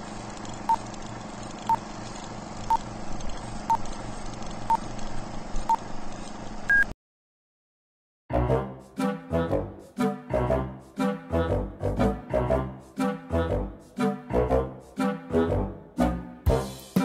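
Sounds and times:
short beeps: 0:06.7 - 0:06.9.

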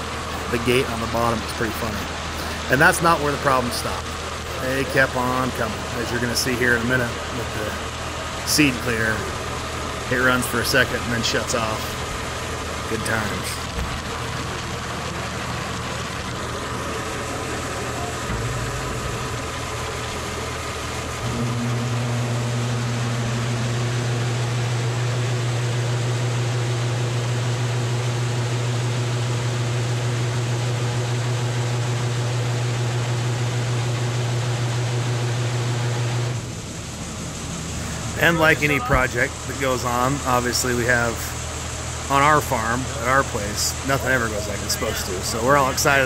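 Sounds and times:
auger motor running: 0:00.0 - 0:46.0
electric motor humming: 0:00.0 - 0:46.0.

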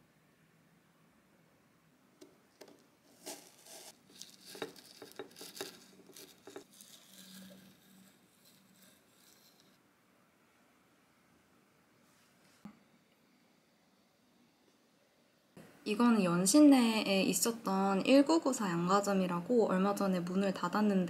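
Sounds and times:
knife crunching through frozen cake: 0:03.2 - 0:08.0
knife scraping: 0:03.2 - 0:09.8.

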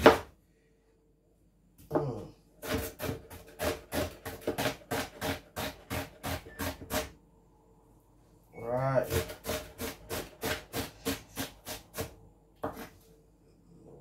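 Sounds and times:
knife chopping on plastic board: 0:00.0 - 0:00.3, 0:01.9 - 0:07.1, 0:09.1 - 0:12.9.

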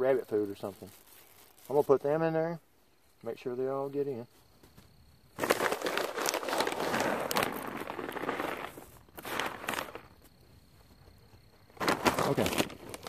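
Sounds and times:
plastic bag crinkling: 0:00.6 - 0:01.9, 0:05.4 - 0:10.2, 0:11.7 - 0:13.0.

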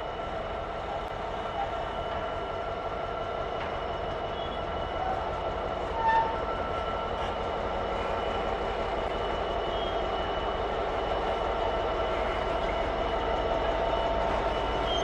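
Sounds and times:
diesel locomotive engine running: 0:00.0 - 0:15.0
short high squeal: 0:05.9 - 0:06.7.

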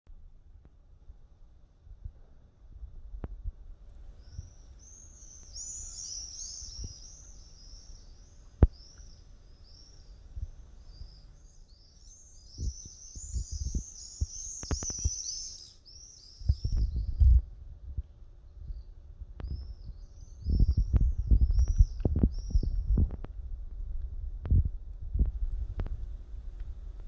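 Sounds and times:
small birds chirping: 0:03.8 - 0:17.5, 0:18.1 - 0:23.3.

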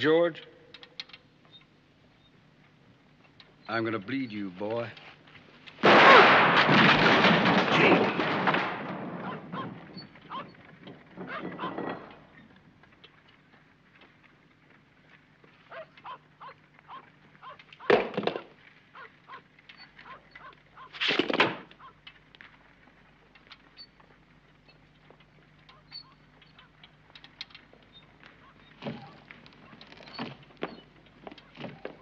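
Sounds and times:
loud rough burst: 0:05.8 - 0:09.5.

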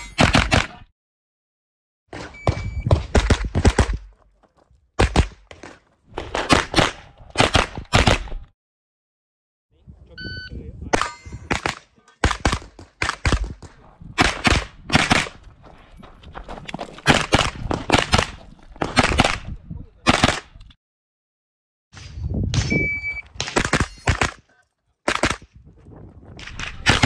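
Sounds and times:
shot timer beep: 0:22.6 - 0:23.3.

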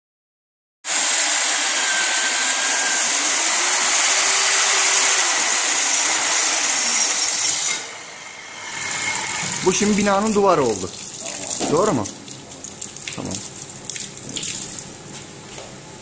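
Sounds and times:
core drill cutting concrete: 0:00.9 - 0:10.4.

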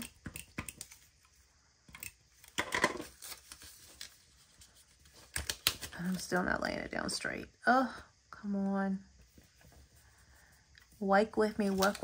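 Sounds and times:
paper rustling: 0:02.4 - 0:06.4, 0:11.4 - 0:12.0.

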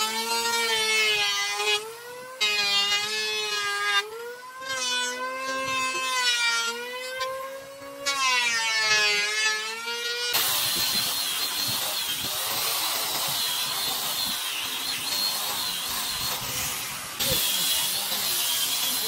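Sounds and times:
power tool whining and hissing: 0:00.0 - 0:19.0.

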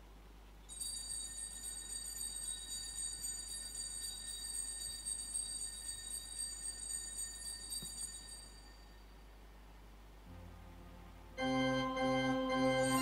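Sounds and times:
bells jingling: 0:00.7 - 0:09.1, 0:12.6 - 0:13.0.

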